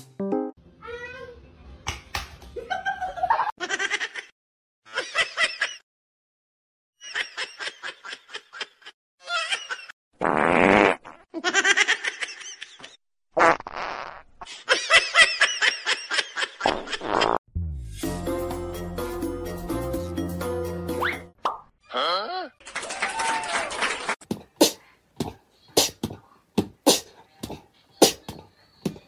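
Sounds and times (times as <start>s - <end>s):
people laughing: 2.6s - 4.2s.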